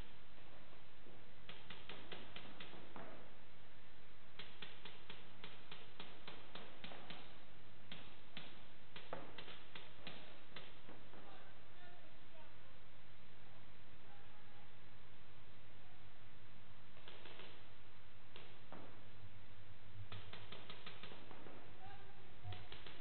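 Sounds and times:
steady low hum: 0.0 - 23.0
rapid gunshot cracks: 1.4 - 3.4, 4.3 - 11.4, 16.9 - 19.2, 20.0 - 21.8.

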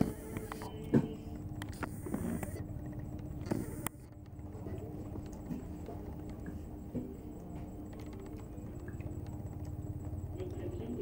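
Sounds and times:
faint steady hum: 0.0 - 11.0
chewing and mouth clicks: 1.6 - 6.6.

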